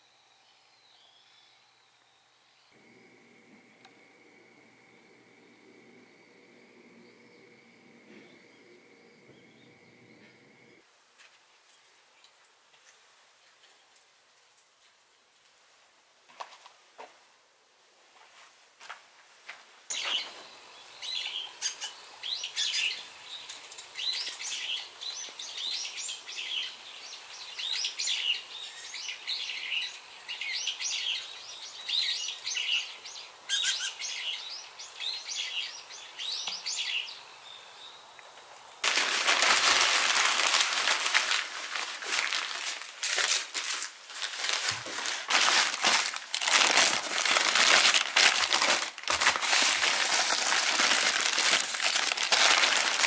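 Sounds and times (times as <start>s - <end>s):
small birds chirping: 0.0s - 10.8s, 19.9s - 38.8s
paper crumpling and rustling: 38.8s - 53.0s.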